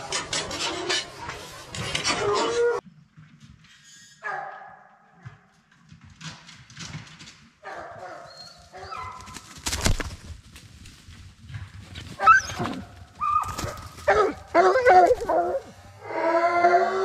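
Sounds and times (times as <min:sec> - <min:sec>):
hounds crying: 0:12.2 - 0:17.0.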